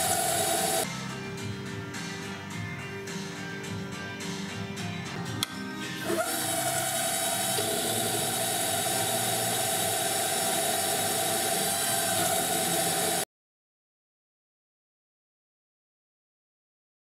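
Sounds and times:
milling machine motor whine: 0.0 - 0.8, 6.0 - 13.2.

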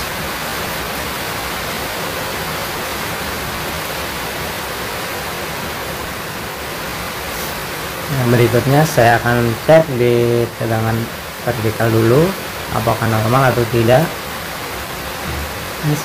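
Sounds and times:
background noise hiss: 0.0 - 16.0.

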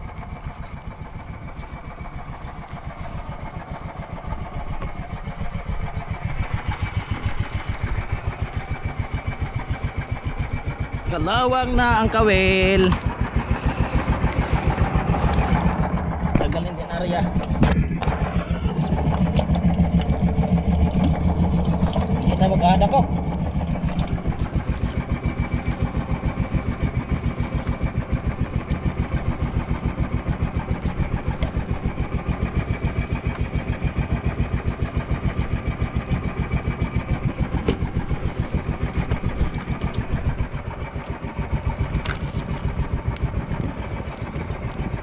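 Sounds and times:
boat engine idling: 0.0 - 45.0.

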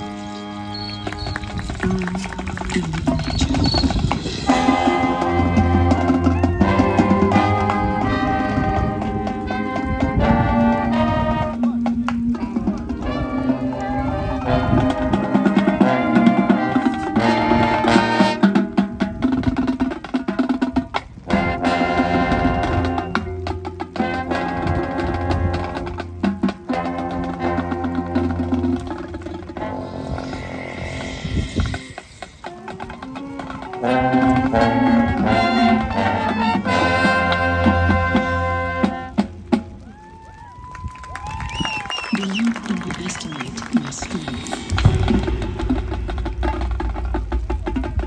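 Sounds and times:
marching band playing: 0.0 - 48.0
drums and percussion hits: 0.8 - 40.2, 42.4 - 48.0
brass chords: 4.2 - 39.8, 43.6 - 48.0
sharp drum hits: 44.6 - 48.0.

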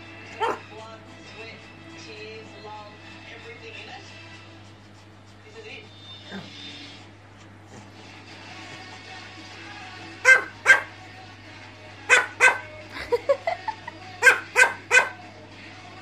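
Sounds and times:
dog barking: 0.4 - 0.7, 10.2 - 11.0, 12.1 - 12.7, 14.2 - 15.2.

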